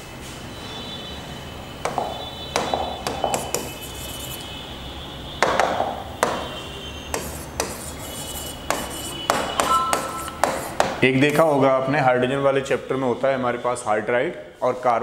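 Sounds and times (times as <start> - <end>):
tapping on touchscreen panel: 1.8 - 3.8, 8.7 - 11.0.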